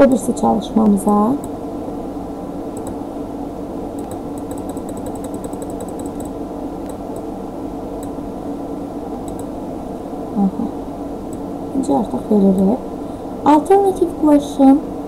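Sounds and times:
steady background hum: 0.0s - 15.0s
mouse scroll wheel clicks: 4.0s - 6.3s.

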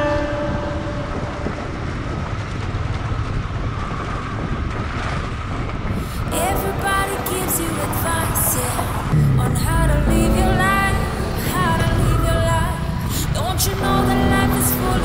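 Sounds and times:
wind buffeting microphone: 0.0s - 15.0s
music with singing: 6.0s - 15.0s
motorcycle engine: 7.8s - 14.1s.

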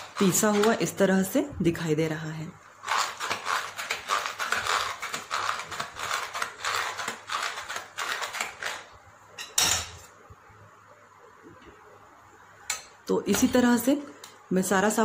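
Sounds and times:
blade scraping food mill plate: 0.0s - 1.0s, 2.8s - 8.9s.

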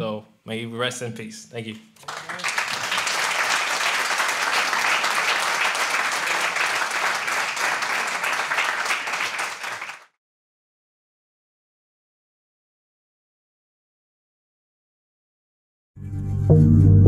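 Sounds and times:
audience applauding: 2.0s - 10.2s.

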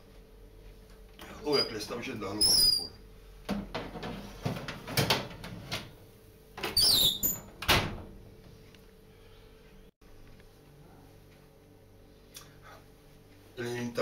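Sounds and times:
oven door squeaking: 1.5s - 3.0s, 6.6s - 8.0s
oven door banging shut: 6.6s - 8.2s.

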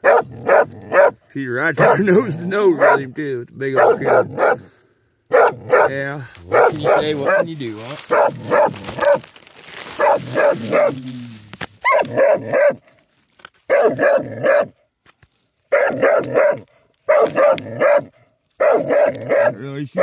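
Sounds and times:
dog barking: 0.0s - 1.2s, 1.8s - 3.1s, 3.8s - 4.7s, 5.3s - 9.3s, 9.9s - 11.0s, 11.8s - 12.9s, 13.7s - 14.8s, 15.7s - 19.6s.

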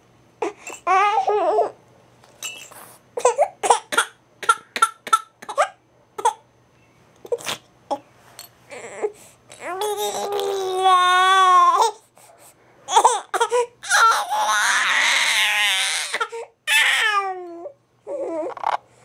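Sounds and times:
baby crying: 0.4s - 1.8s, 8.7s - 12.0s, 12.9s - 18.7s.

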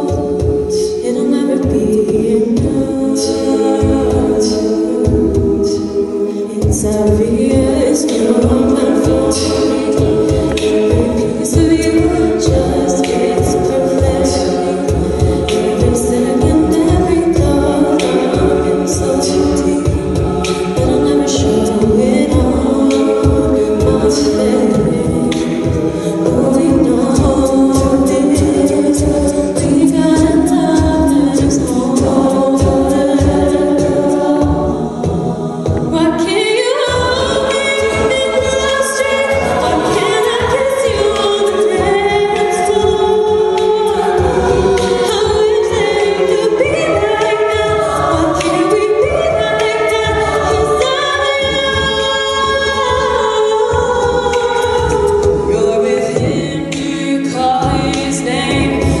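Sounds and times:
backing voices singing: 0.0s - 59.0s
vocal percussion beat: 0.0s - 59.0s.

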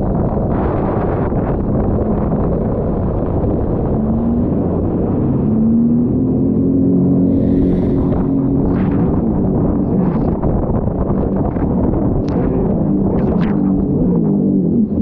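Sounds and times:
jet ski engine running: 0.0s - 15.0s
loud rushing noise: 7.2s - 9.7s.

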